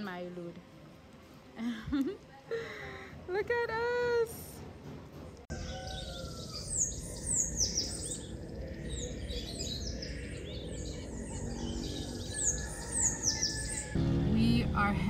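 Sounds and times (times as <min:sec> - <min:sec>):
birds chirping: 0:05.2 - 0:15.0.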